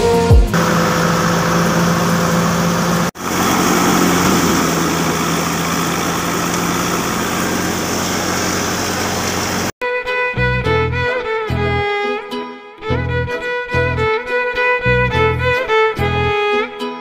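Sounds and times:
engine hum: 0.4 - 9.8
thresher rushing noise: 0.5 - 9.7.

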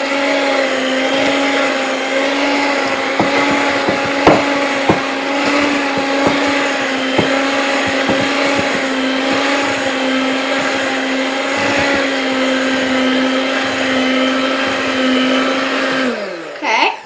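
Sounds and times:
electric hand mixer running: 0.0 - 17.0
beaters knocking against bowl: 3.2 - 9.6.

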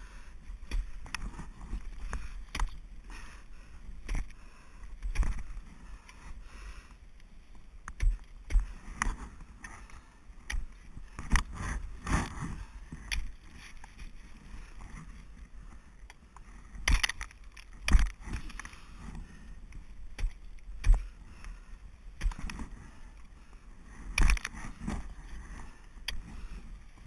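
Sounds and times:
ice axes striking ice: 5.0 - 5.5, 7.8 - 9.2, 16.7 - 18.8, 20.1 - 21.5, 22.2 - 22.9, 24.1 - 24.9.

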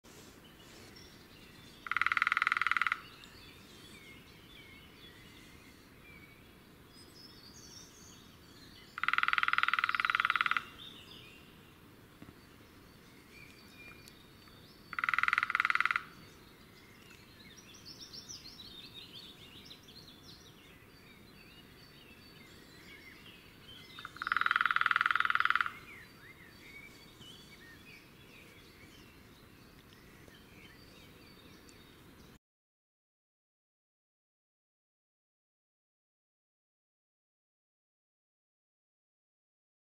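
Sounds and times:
faint songbird twittering: 0.1 - 32.4
woodpecker drumming: 1.7 - 3.2, 9.0 - 10.8, 14.9 - 16.2, 23.9 - 26.0.

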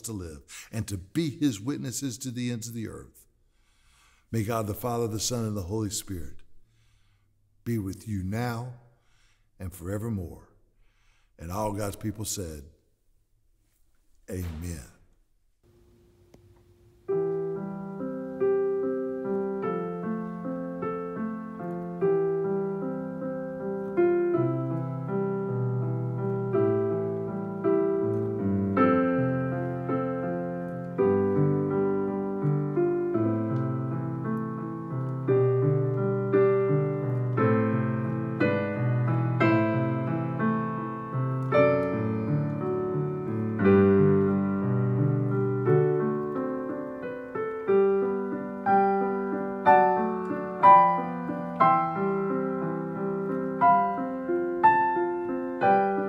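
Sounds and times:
solo piano melody over chords: 17.0 - 56.0.

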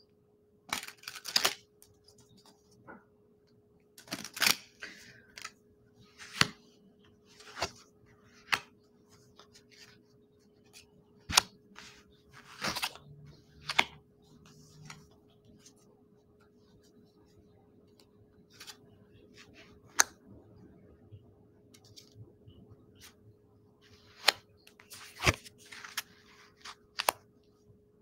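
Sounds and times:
faint steady hum: 0.0 - 28.0
cards clicking and snapping: 0.7 - 1.6, 4.0 - 5.6, 13.6 - 14.0, 24.2 - 27.2.

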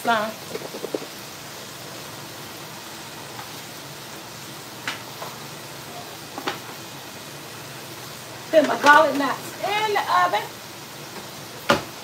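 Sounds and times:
ground beef frying: 0.0 - 12.0
water at a rolling boil: 0.0 - 12.0.

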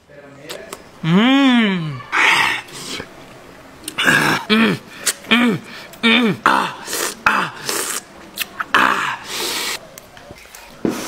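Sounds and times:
man gasping: 3.9 - 7.6
man grunting and coughing: 4.0 - 7.6.

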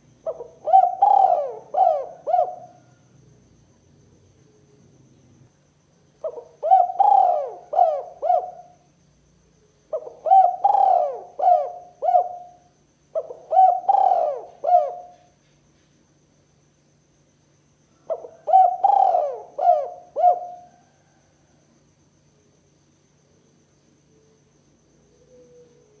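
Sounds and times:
dove cooing: 0.0 - 3.4, 6.2 - 8.8, 9.9 - 15.3, 18.0 - 21.2, 25.1 - 26.0.

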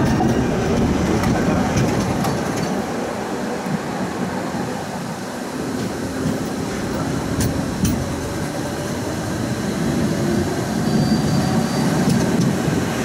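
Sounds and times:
tram wheels rumbling on rails: 0.0 - 13.0.

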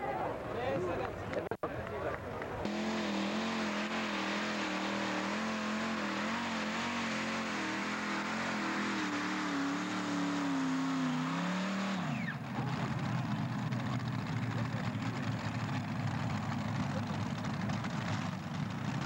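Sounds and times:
tractor engine running under load: 12.2 - 19.0.

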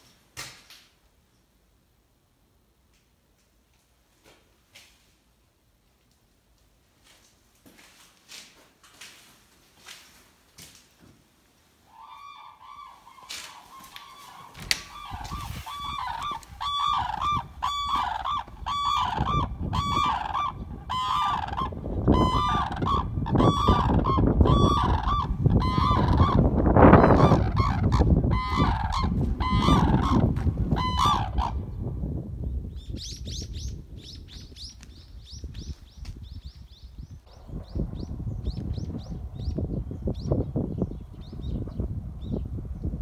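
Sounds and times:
cranes trumpeting calls: 11.8 - 31.6
cranes chattering calls: 11.9 - 31.6
low rumbling noise: 37.1 - 43.0.

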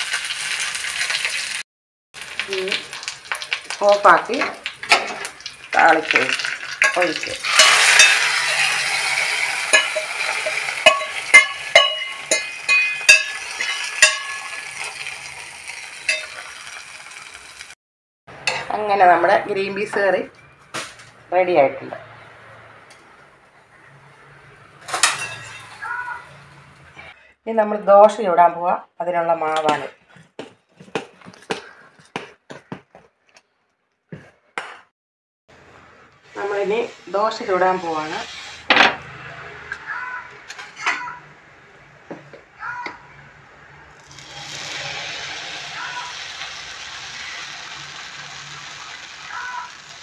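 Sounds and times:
hot oil sizzling: 0.0 - 1.6, 2.2 - 17.8, 24.1 - 26.9, 35.6 - 39.8, 43.8 - 50.0
metal spoon scraping steel pan: 6.8 - 15.0.

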